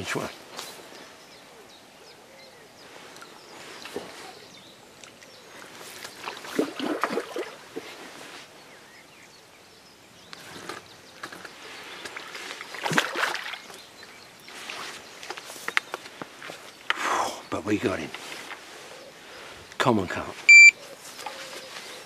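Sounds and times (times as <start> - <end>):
fish splashing and thrashing: 6.0 - 8.0, 12.0 - 13.8.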